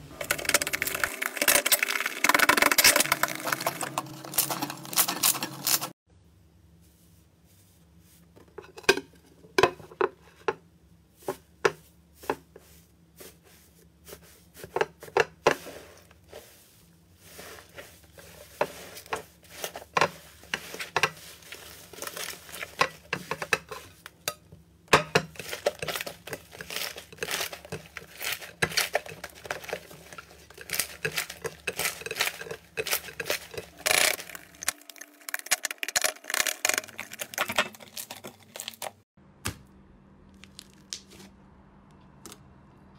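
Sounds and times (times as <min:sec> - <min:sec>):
slime crackling and crunching: 0:00.2 - 0:06.0, 0:17.3 - 0:23.5, 0:25.3 - 0:39.0, 0:40.4 - 0:41.2.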